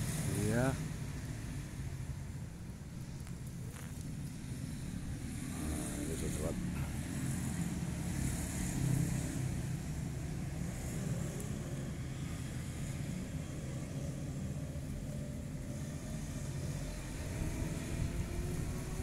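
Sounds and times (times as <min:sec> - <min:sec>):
wind buffeting microphone: 0:16.8 - 0:19.0.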